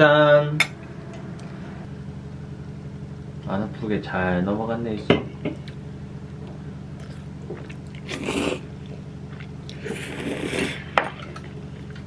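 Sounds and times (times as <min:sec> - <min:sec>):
slurping noodles: 0:07.0 - 0:08.7, 0:09.3 - 0:11.0
chewing: 0:07.0 - 0:12.0.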